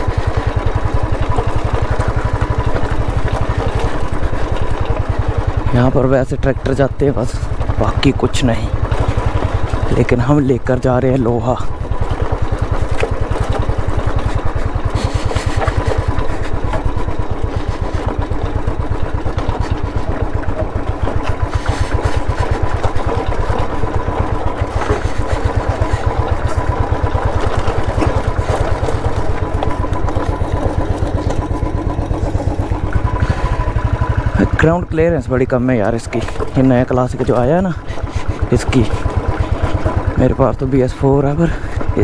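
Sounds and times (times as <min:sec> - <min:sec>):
motorcycle engine at low revs: 0:00.0 - 0:42.0.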